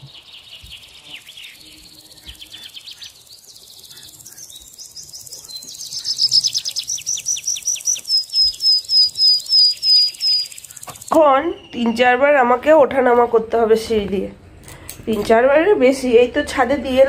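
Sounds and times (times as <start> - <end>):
bird singing repeated notes: 0.0 - 12.8
birds calling: 0.0 - 13.2.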